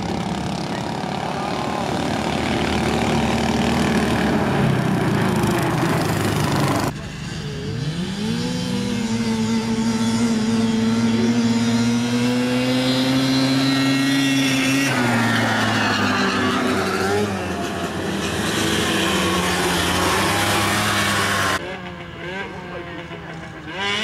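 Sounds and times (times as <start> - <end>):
atv engines at full throttle: 0.0 - 24.0.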